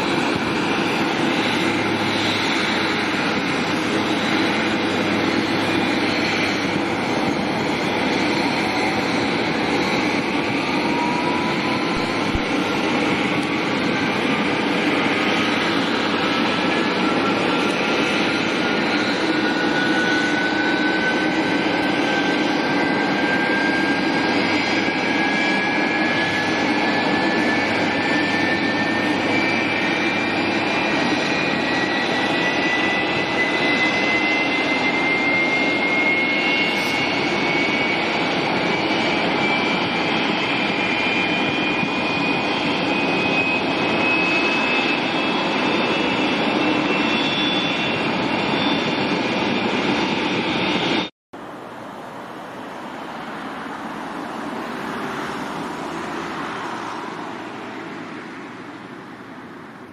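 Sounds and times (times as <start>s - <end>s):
jet engines running: 0.0s - 59.9s.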